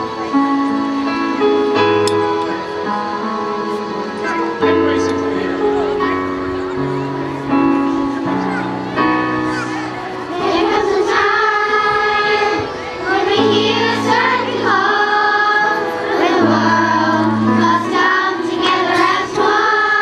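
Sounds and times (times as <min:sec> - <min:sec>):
instrumental accompaniment: 0:00.0 - 0:20.0
children's choir singing: 0:06.6 - 0:20.0.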